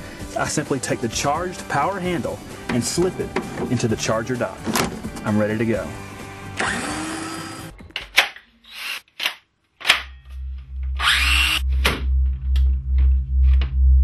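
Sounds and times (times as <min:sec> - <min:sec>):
power tool motor whir: 0:06.6 - 0:07.7, 0:08.7 - 0:09.0, 0:11.0 - 0:11.6
pulsing bass beat music: 0:10.2 - 0:14.0.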